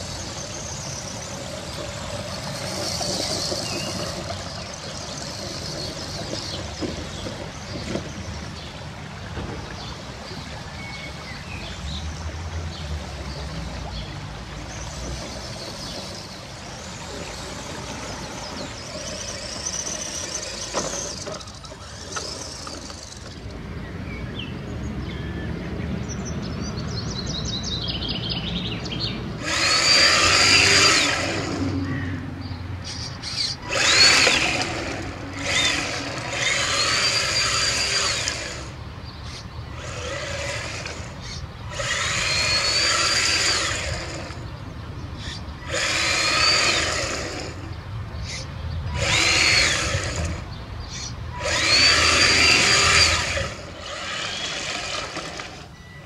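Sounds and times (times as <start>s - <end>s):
rc car electric motor whining: 0.0s - 6.6s, 15.4s - 23.5s, 29.4s - 31.8s, 32.9s - 44.5s, 45.2s - 55.7s.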